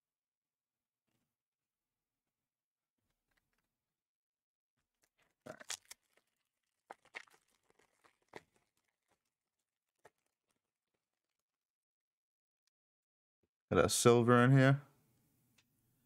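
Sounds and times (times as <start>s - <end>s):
foil wrapper crinkling and tearing: 5.0s - 11.3s.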